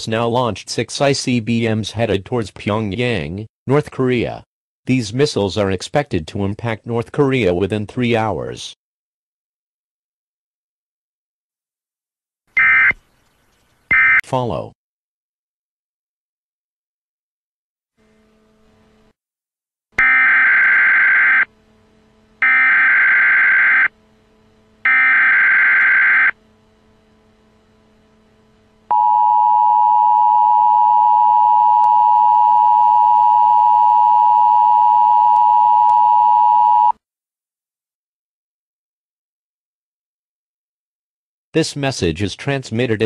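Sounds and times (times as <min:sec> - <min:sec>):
harsh digital data screech: 0:22.4 - 0:23.9.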